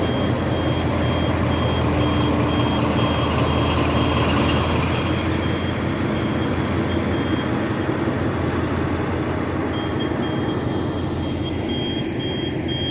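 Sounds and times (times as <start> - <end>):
diesel locomotive engine running: 0.0 - 12.9
high-pitched electronic beeping: 9.7 - 12.9.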